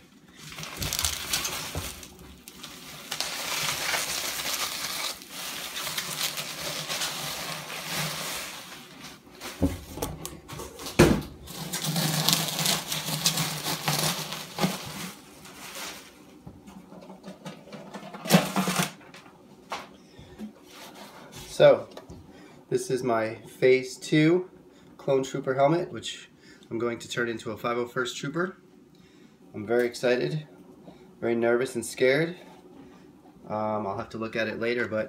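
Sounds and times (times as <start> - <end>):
packing material rustling: 0.3 - 10.0, 10.8 - 16.3.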